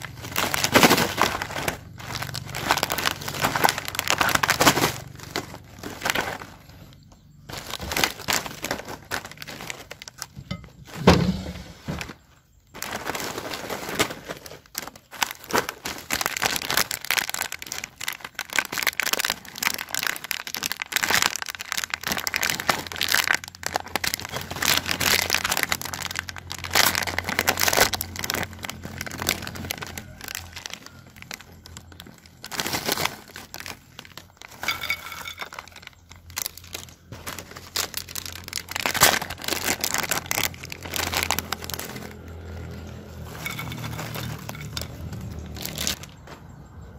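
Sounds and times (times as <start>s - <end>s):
snack packets crinkling: 0.0s - 11.0s, 11.9s - 46.6s
thump: 11.0s - 12.0s.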